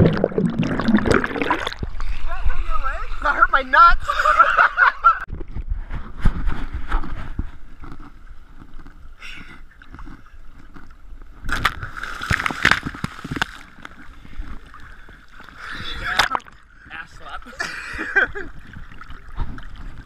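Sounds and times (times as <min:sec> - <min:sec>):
water splashing: 0:00.0 - 0:02.7, 0:09.9 - 0:20.0
lake water sloshing and lapping: 0:06.5 - 0:20.0.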